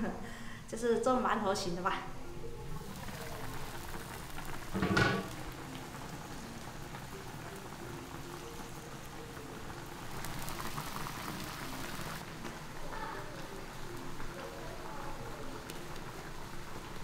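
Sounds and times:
food simmering in wok: 0:02.4 - 0:17.0.

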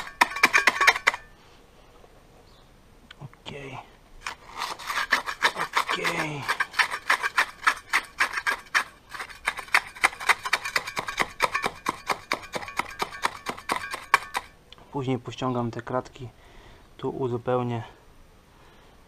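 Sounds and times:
trowel scraping sand on steel: 0:00.0 - 0:01.3, 0:04.2 - 0:14.5.

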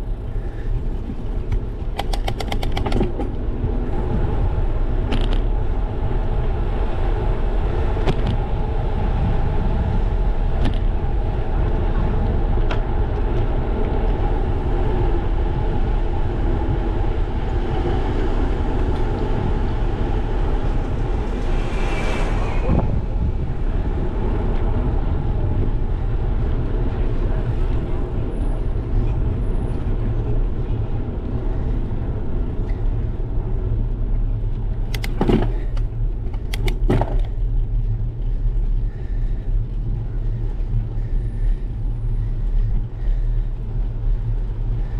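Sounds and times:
tyre and road noise: 0:00.0 - 0:44.9
wind buffeting microphone: 0:00.0 - 0:44.9.

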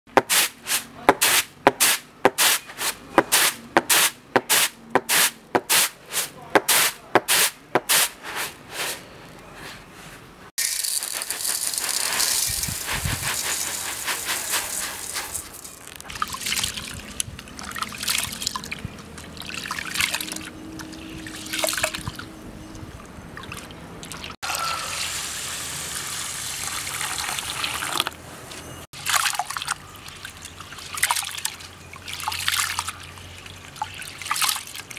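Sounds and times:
rice swishing on winnowing tray: 0:10.6 - 0:15.6
rice grains pouring in metal bowl: 0:10.6 - 0:15.8
rice being washed in water: 0:10.6 - 0:20.4, 0:29.0 - 0:34.9.

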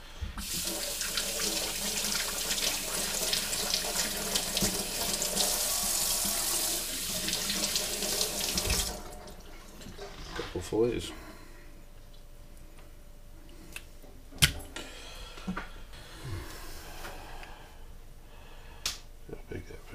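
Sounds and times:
faucet running into metal sink: 0:00.4 - 0:10.1.

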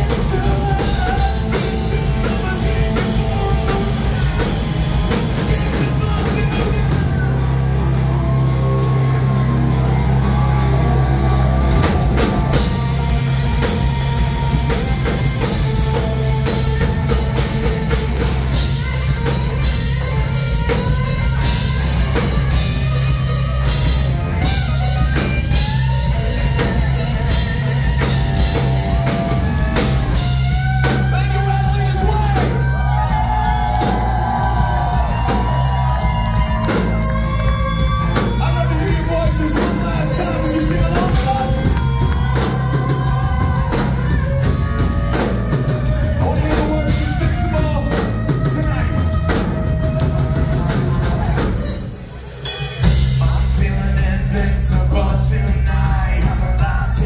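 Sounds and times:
person singing lead vocal: 0:00.0 - 0:07.7, 0:30.8 - 0:34.1, 0:38.3 - 0:44.2, 0:46.2 - 0:49.4, 0:52.8 - 0:57.0
bass guitar: 0:00.0 - 0:57.0
drum kit: 0:00.0 - 0:57.0.

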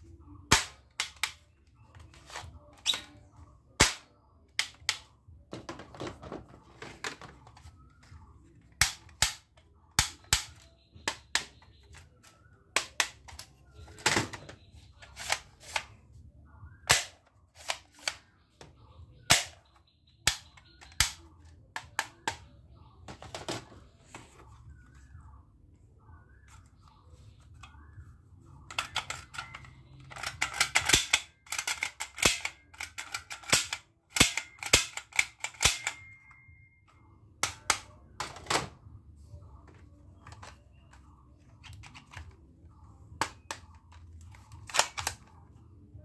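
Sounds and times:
plastic toy guns clacking: 0:08.7 - 0:12.0, 0:20.2 - 0:21.2, 0:28.7 - 0:36.1, 0:43.2 - 0:45.3.

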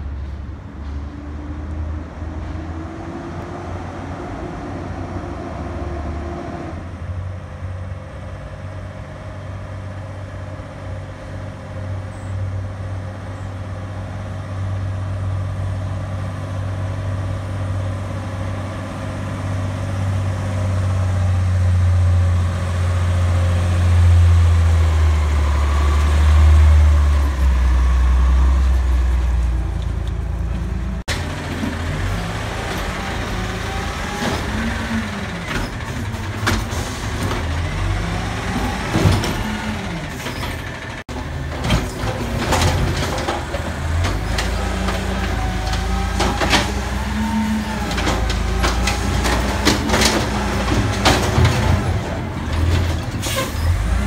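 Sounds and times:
garbage truck engine under load: 0:14.6 - 0:54.0.

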